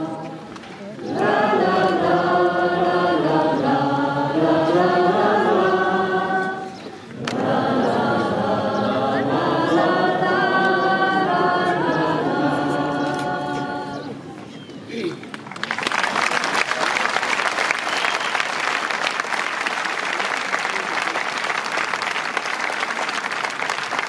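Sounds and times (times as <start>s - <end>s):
choir singing: 0.0s - 14.2s.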